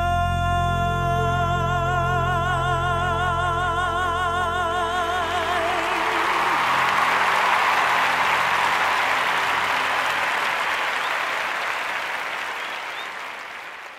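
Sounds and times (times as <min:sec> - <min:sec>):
audience applauding: 0:05.2 - 0:13.9.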